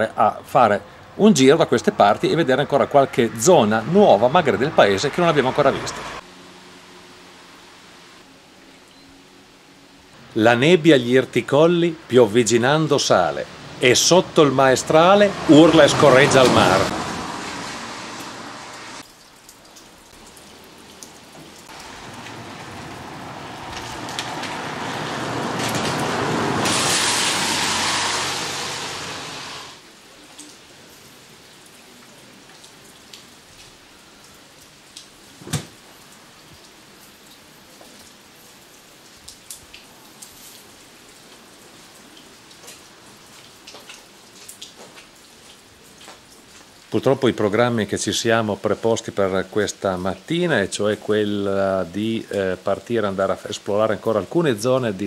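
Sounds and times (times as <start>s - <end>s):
light rain pattering: 0.0s - 55.0s
rushing hiss: 25.6s - 29.8s.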